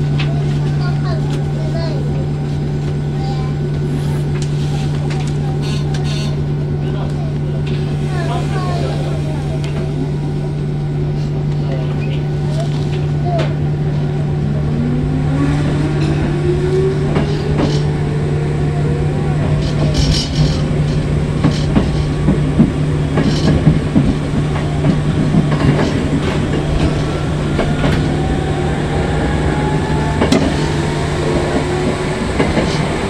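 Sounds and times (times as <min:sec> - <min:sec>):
train motor whine: 0:13.0 - 0:33.0
wheels clicking over rail joints: 0:19.5 - 0:28.2.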